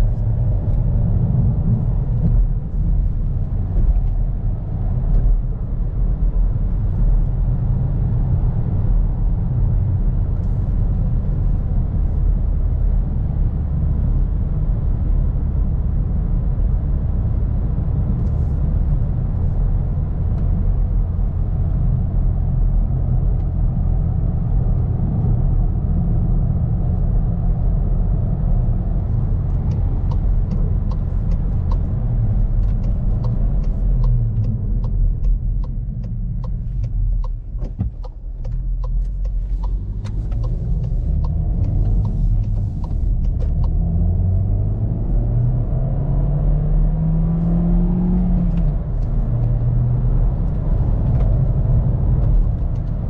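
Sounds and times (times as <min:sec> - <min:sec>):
car engine and tyre rumble: 0:00.0 - 0:53.0
turn signal ticking: 0:28.2 - 0:46.2, 0:48.2 - 0:53.0.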